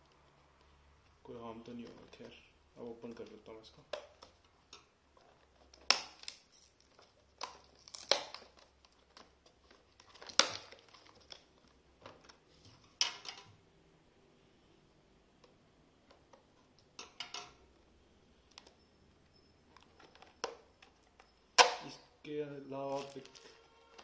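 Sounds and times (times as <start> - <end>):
plastic wrap crinkling and tearing: 5.2 - 12.4, 22.8 - 24.0
scissors cutting plastic: 5.4 - 11.6.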